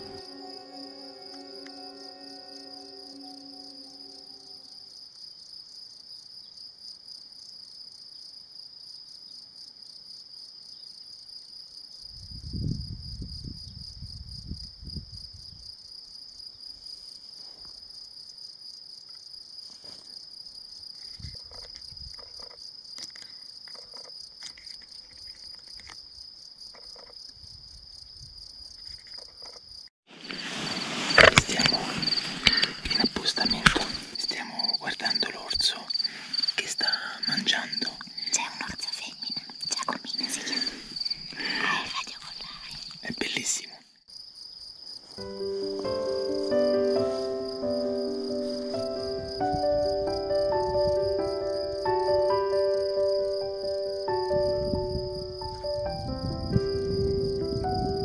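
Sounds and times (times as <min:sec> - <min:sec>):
crickets chirring: 0:00.0 - 0:58.0
close rustling and handling noise: 0:30.1 - 0:34.2.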